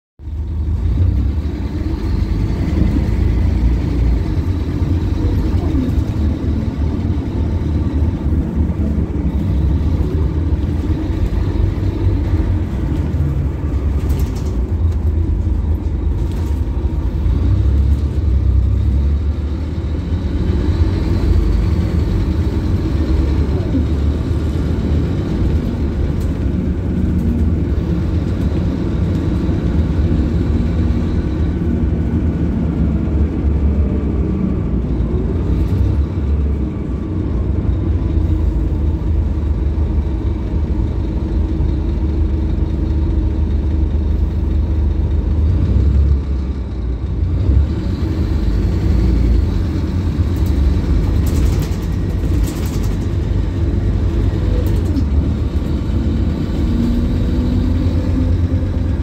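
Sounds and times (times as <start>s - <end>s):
bus diesel engine drone: 0.2s - 59.0s
sharp clicks or rattles: 50.4s - 53.6s.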